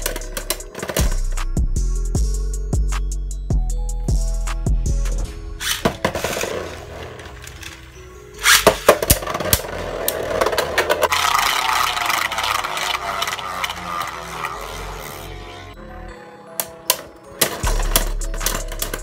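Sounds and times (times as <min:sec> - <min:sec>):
tops scraping and clicking: 0:00.0 - 0:01.2, 0:05.0 - 0:15.8, 0:16.6 - 0:19.0
spinning tops clacking: 0:00.0 - 0:01.4, 0:05.6 - 0:15.3, 0:16.9 - 0:19.0
background music with beat: 0:00.0 - 0:07.7, 0:16.1 - 0:19.0.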